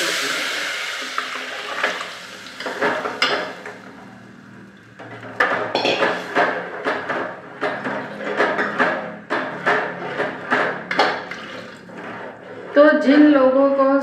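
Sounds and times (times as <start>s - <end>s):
batter sizzling in hot fat: 0.0s - 4.7s
steel spoon scraping metal pot: 7.6s - 13.3s.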